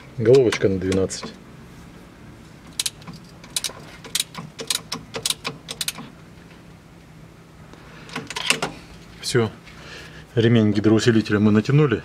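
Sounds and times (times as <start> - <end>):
ratchet wrench clicking: 2.7 - 6.1.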